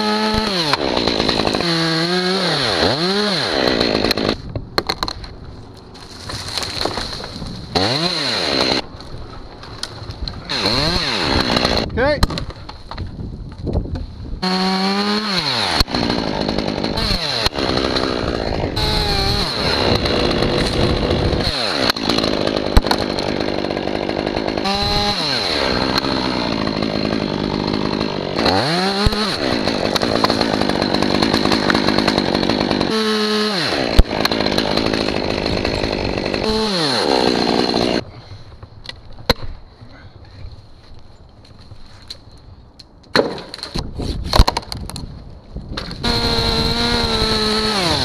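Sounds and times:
chainsaw cutting wood: 0:00.0 - 0:05.2, 0:06.0 - 0:09.1, 0:09.8 - 0:12.6, 0:14.4 - 0:38.0, 0:45.7 - 0:48.0.

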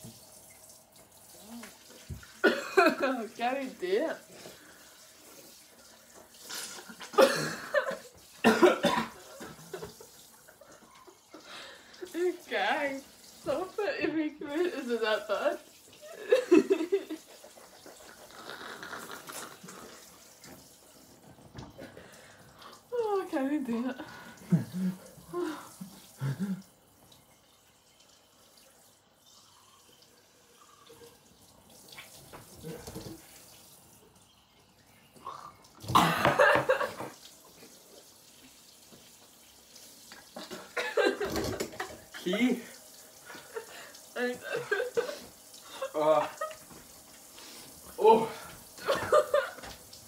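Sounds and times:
faint steady hiss: 0:00.0 - 0:50.0
woman coughing and spluttering: 0:02.2 - 0:03.7, 0:06.5 - 0:10.8, 0:23.7 - 0:26.7, 0:35.8 - 0:37.2, 0:40.4 - 0:42.7, 0:43.3 - 0:46.6, 0:48.3 - 0:49.7.

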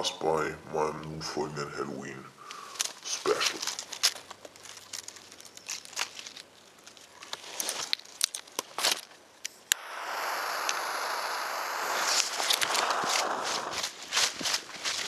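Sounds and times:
leaves and twigs crunching: 0:02.5 - 0:09.2, 0:12.3 - 0:15.0
lighter click: 0:09.7 - 0:13.6
jet torch flame hissing: 0:09.7 - 0:14.2.

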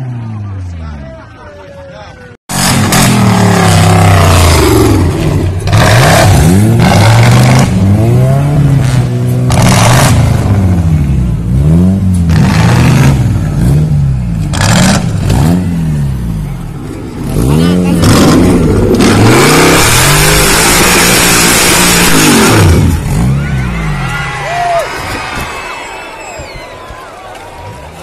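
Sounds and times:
buggy engine revving: 0:02.5 - 0:25.3
loud noise bursts: 0:19.0 - 0:26.0.

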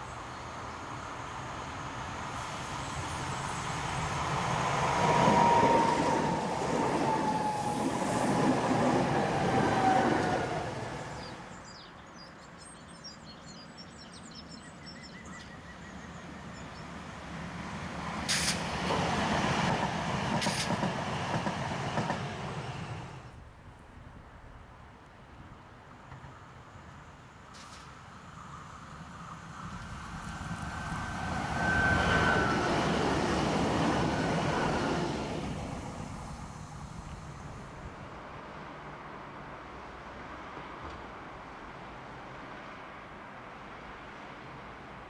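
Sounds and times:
tram passing with whine: 0:00.0 - 0:11.8, 0:15.4 - 0:23.5, 0:24.3 - 0:45.0
short sharp hisses: 0:18.3 - 0:18.7, 0:20.4 - 0:20.8.

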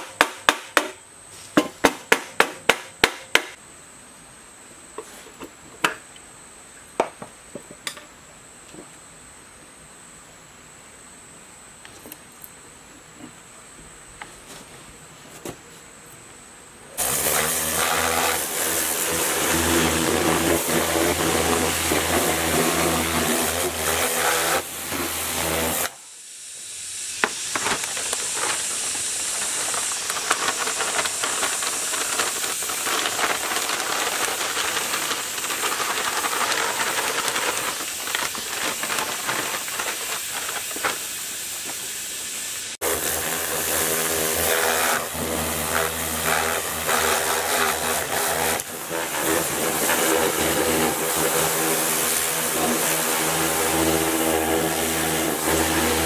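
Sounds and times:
long steady hiss: 0:00.0 - 0:56.0
engine running: 0:27.5 - 0:40.9.

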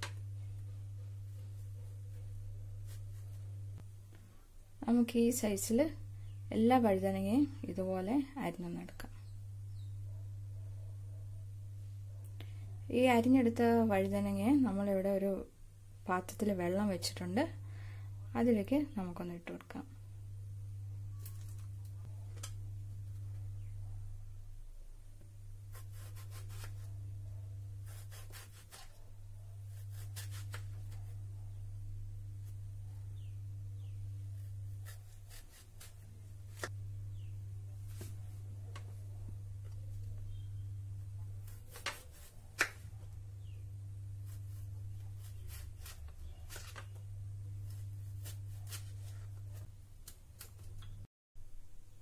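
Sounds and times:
steady low hum: 0:00.0 - 0:52.0
knife slicing vegetable: 0:25.7 - 0:26.9, 0:27.8 - 0:29.1, 0:29.7 - 0:31.2, 0:34.4 - 0:36.8, 0:41.4 - 0:42.8, 0:47.6 - 0:50.5.

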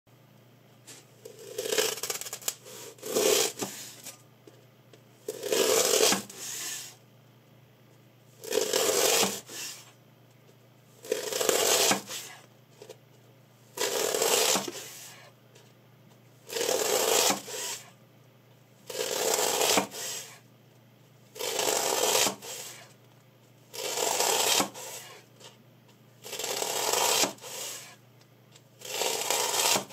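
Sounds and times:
knife slicing through foam: 0:01.3 - 0:04.0, 0:05.3 - 0:07.0, 0:08.4 - 0:09.9, 0:11.0 - 0:12.4, 0:13.8 - 0:15.3, 0:16.5 - 0:17.9, 0:18.9 - 0:20.4, 0:21.4 - 0:22.9, 0:23.7 - 0:25.2, 0:26.3 - 0:28.0, 0:28.8 - 0:29.9.

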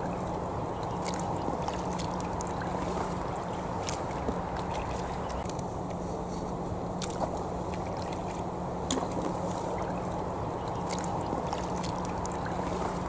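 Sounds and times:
paddle splashes and drips: 0:00.0 - 0:05.5, 0:06.9 - 0:13.0
steady low hum: 0:00.0 - 0:13.0
water sloshing along hull: 0:00.0 - 0:13.0.

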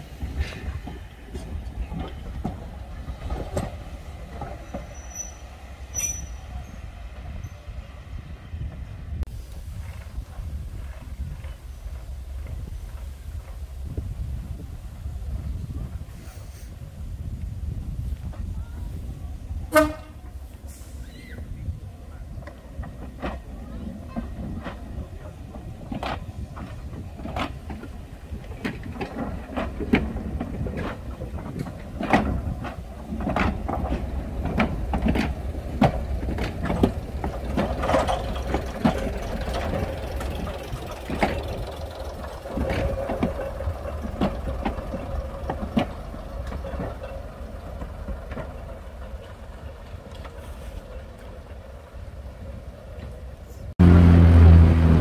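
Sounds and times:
train wheels clicking over rail joints: 0:00.0 - 0:07.7, 0:19.5 - 0:53.5
diesel engine low rumble: 0:00.0 - 0:55.0.

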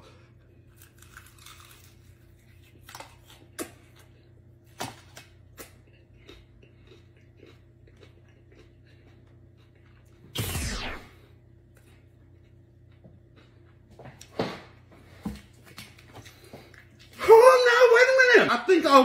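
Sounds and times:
low room hum: 0:00.0 - 0:19.0
person chewing food: 0:00.4 - 0:10.3, 0:11.7 - 0:14.3, 0:15.2 - 0:17.2.

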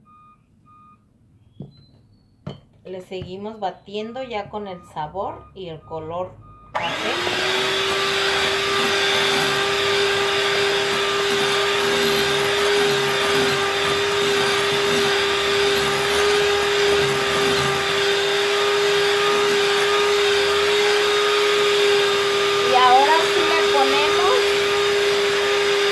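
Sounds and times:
electric hand mixer whirring: 0:06.8 - 0:25.9.

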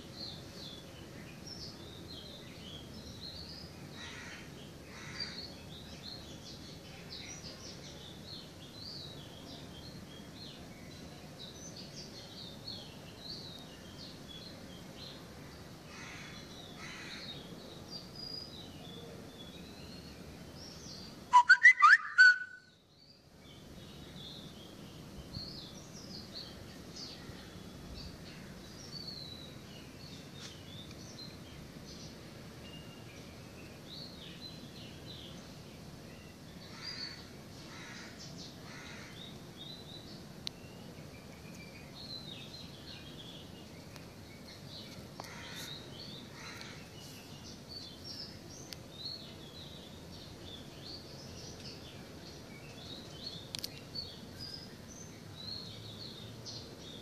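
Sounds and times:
small birds chirping: 0:00.0 - 0:57.0
rapid clicks and warbling whistle: 0:21.3 - 0:22.5.

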